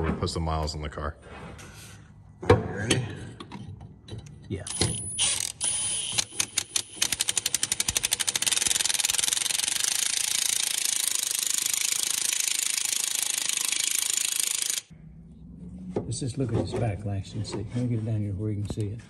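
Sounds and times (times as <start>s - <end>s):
impact wrench trigger pulls: 4.7s - 14.9s.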